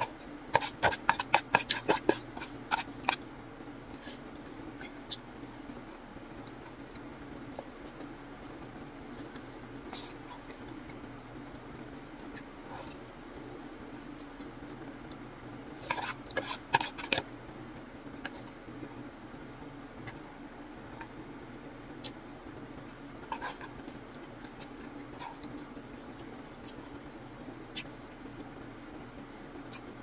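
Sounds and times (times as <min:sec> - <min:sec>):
soft chewing: 0:00.0 - 0:19.0, 0:19.9 - 0:30.0
steady low hum: 0:00.0 - 0:30.0
chopsticks scraping in paper box: 0:15.8 - 0:17.2.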